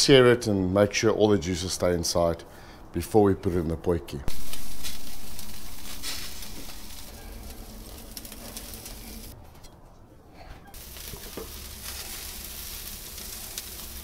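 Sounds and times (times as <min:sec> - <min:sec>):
meat sizzling over coals: 0:04.3 - 0:09.4, 0:10.7 - 0:14.0.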